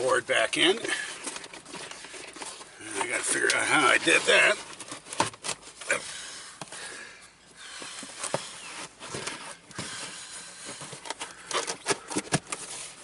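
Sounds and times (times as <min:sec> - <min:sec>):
floor mat rustling and scraping: 0:07.9 - 0:13.0.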